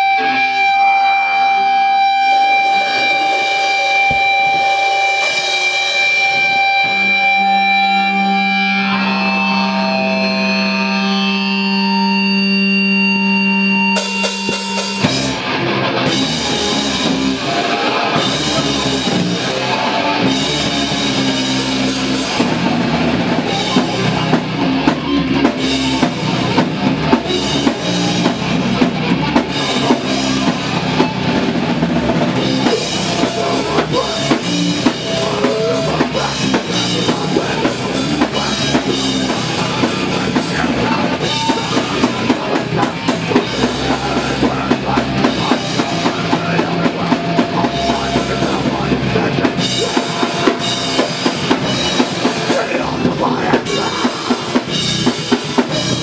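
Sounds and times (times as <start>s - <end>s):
heavy metal band playing: 0.0s - 56.0s
steady bass drum: 14.0s - 56.0s.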